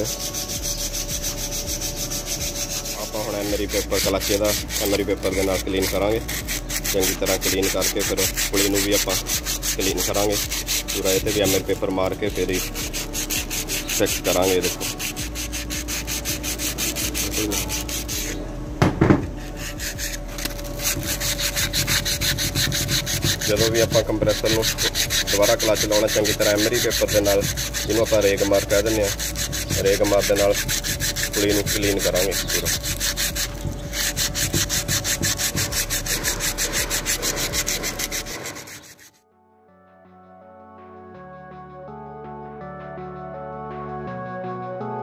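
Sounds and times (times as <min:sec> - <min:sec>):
sandpaper rubbing on metal: 0:00.0 - 0:18.4, 0:19.4 - 0:39.2
sharp knocks: 0:18.8 - 0:19.4.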